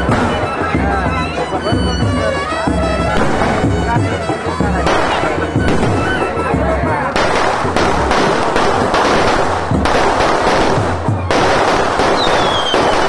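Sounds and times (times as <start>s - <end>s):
firework cracks and bangs: 3.1s - 3.8s, 4.8s - 6.3s, 7.1s - 13.0s
fireworks hissing crackle: 7.2s - 13.0s.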